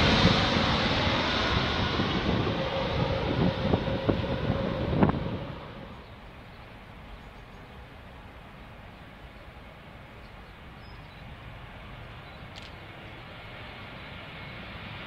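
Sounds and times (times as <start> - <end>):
jet airliner engine rush: 0.0 - 15.0
short clicks: 12.5 - 12.8.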